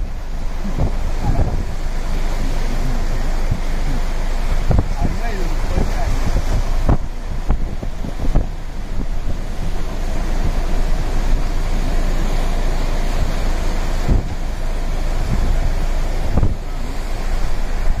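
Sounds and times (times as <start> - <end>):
low thumps: 0.0 - 18.0
waves crashing against seawall: 0.0 - 18.0
wind buffeting microphone: 0.0 - 18.0.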